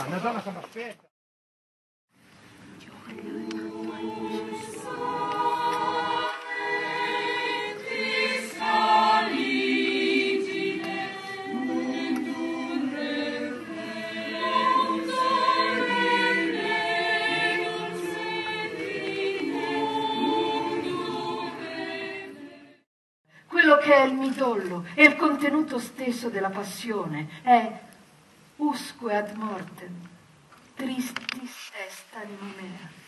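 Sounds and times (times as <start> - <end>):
mixed choir singing: 3.1 - 22.9.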